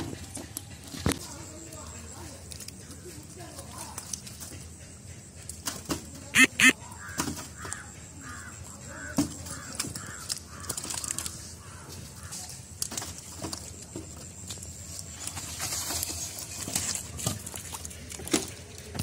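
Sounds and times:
birds calling: 6.4s - 12.6s
wet clicks and slaps in mud: 9.8s - 11.4s.

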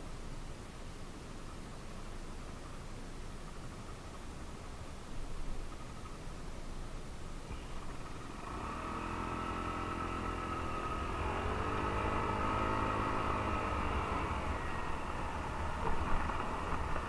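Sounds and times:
scooter engine revving: 7.5s - 17.0s
wind rumble on microphone: 11.2s - 17.0s.

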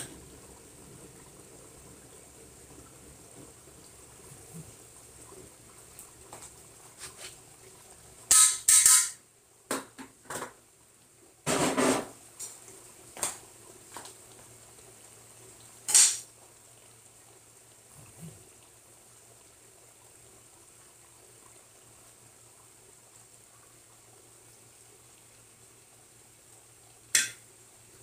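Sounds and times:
utensils clattering against metal pot: 8.3s - 9.2s, 15.9s - 16.2s.

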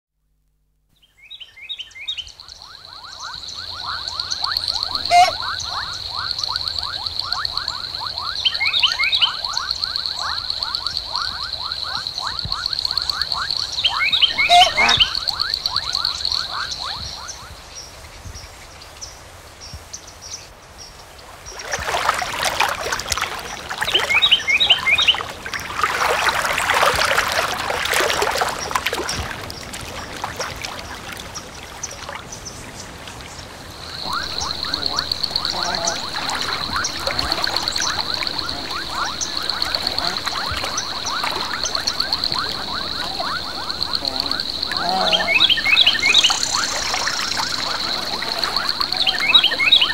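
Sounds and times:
bird chirps: 1.0s - 10.8s, 11.9s - 17.5s, 23.8s - 25.2s, 33.8s - 49.9s
frogs calling in chorus: 1.4s - 17.7s, 21.6s - 49.9s
loud rushing water-like noise: 21.3s - 49.9s.

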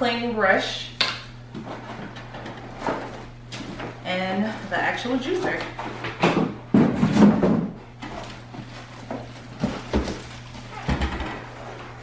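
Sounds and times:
packaging rustling and knocking: 5.9s - 11.6s.

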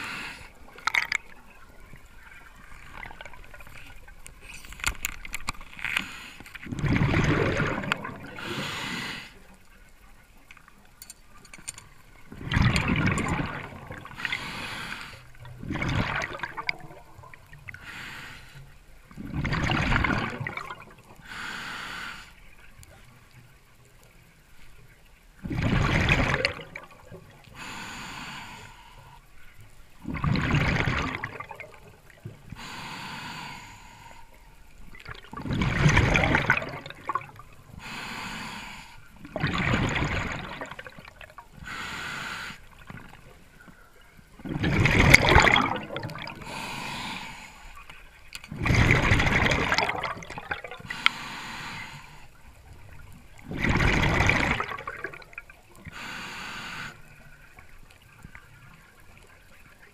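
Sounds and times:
regulator inhaling hiss: 0.0s - 0.7s, 5.9s - 6.6s, 8.4s - 9.5s, 14.1s - 15.4s, 17.7s - 18.8s, 21.2s - 22.5s, 27.4s - 29.4s, 32.5s - 34.7s, 37.7s - 39.2s, 41.6s - 42.8s, 46.4s - 48.1s, 50.8s - 52.5s, 55.8s - 57.5s
exhaled bubbles bursting: 6.6s - 8.6s, 12.2s - 14.4s, 15.5s - 17.6s, 19.2s - 21.2s, 25.4s - 27.4s, 30.0s - 32.2s, 34.9s - 37.6s, 39.2s - 41.4s, 44.4s - 46.7s, 48.4s - 51.0s, 52.9s - 55.6s.

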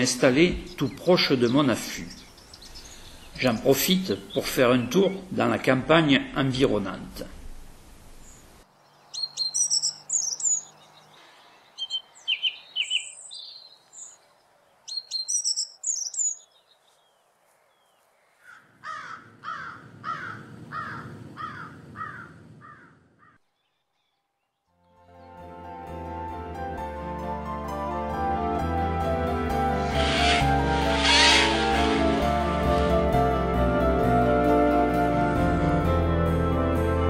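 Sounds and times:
birds chirping: 0.0s - 6.2s, 8.2s - 25.0s, 29.6s - 33.2s
lower downward-sliding bird calls: 8.2s - 24.6s, 29.6s - 33.6s.

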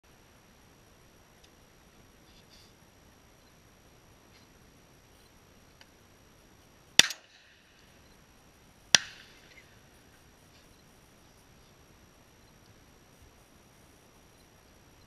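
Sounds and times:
shotgun shots with echo: 7.0s - 7.6s, 8.9s - 9.5s.

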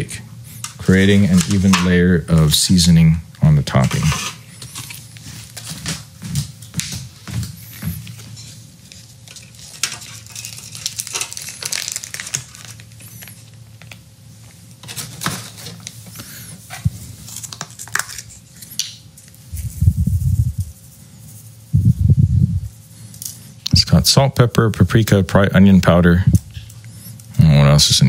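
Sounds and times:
plastic bag crinkling: 9.2s - 14.0s.

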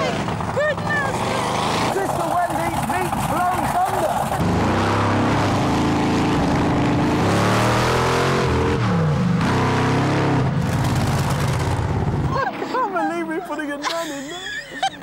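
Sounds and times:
loud engine revving: 0.0s - 12.3s.

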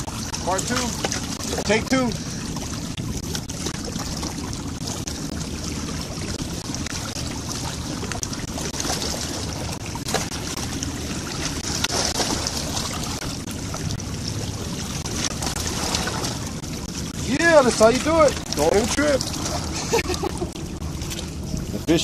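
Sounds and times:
water lapping against rocks: 0.0s - 22.0s
net splashing into water: 7.6s - 13.8s.

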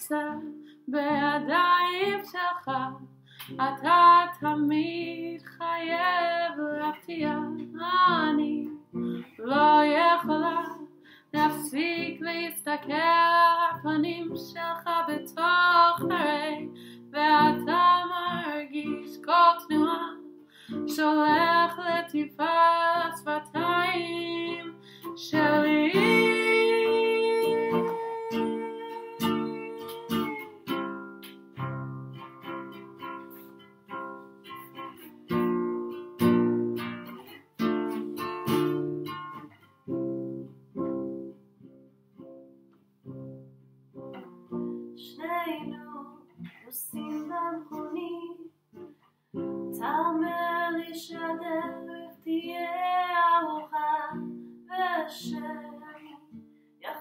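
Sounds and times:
woman singing: 0.0s - 30.9s, 45.0s - 48.6s, 49.7s - 57.0s
acoustic guitar chords: 0.0s - 56.6s.

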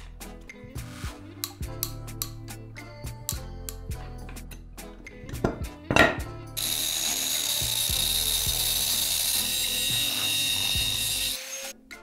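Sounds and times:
cut-off wheel grinding steel: 6.6s - 11.8s.

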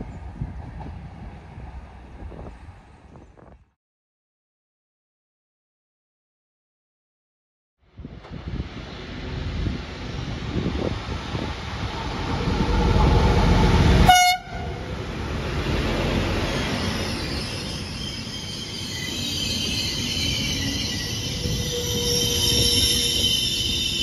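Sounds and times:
diesel train passing: 0.0s - 3.5s, 7.9s - 24.0s
train horn blast: 12.8s - 14.9s
wheel squeal: 16.5s - 24.0s.

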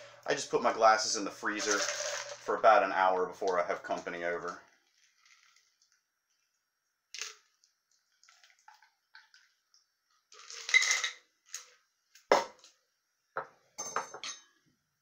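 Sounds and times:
ice clinking in metal shaker: 1.6s - 2.4s, 10.4s - 11.2s.

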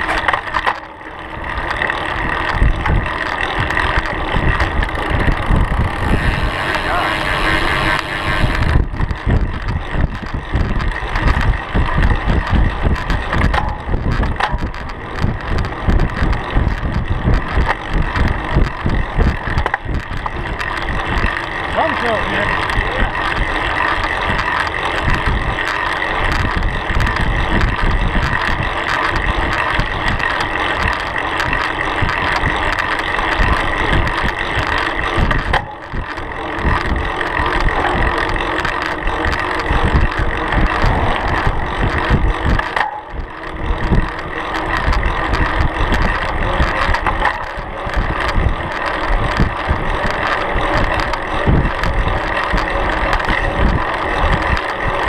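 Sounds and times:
bicycle tyre humming on pavement: 0.0s - 55.0s
wind buffeting microphone: 1.3s - 55.0s.

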